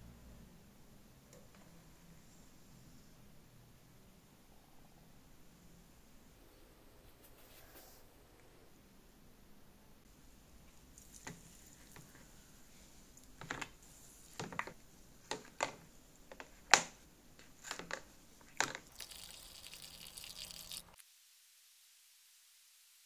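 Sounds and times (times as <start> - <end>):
liquid pouring into tub: 18.5 - 21.0.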